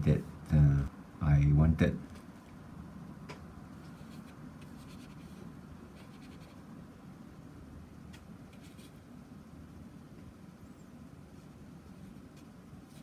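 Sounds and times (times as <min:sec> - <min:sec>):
paintbrush swishing on paper: 0:03.8 - 0:06.6, 0:08.5 - 0:09.0.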